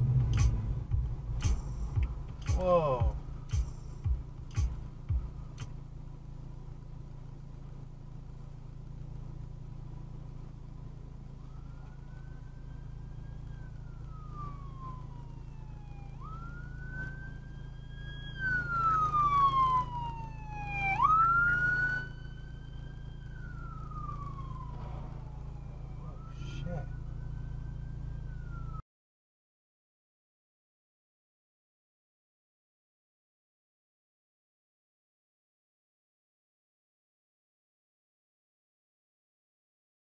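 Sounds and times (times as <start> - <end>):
police car siren wailing: 0.4 - 6.0, 10.6 - 28.8.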